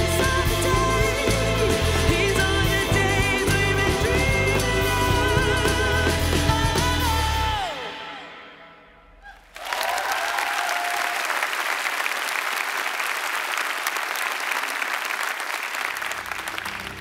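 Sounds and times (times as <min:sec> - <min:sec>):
congregation applauding: 0:09.2 - 0:17.0.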